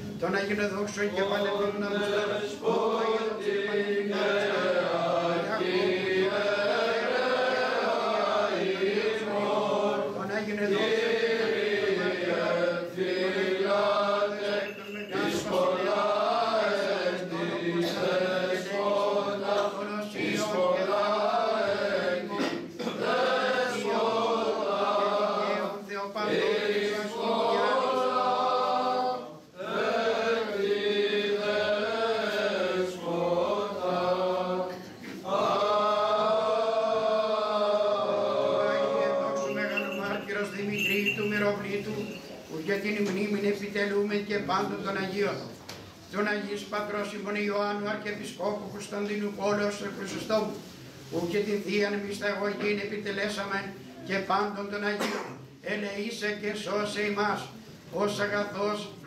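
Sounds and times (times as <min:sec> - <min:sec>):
men singing chant: 0:00.6 - 0:42.2.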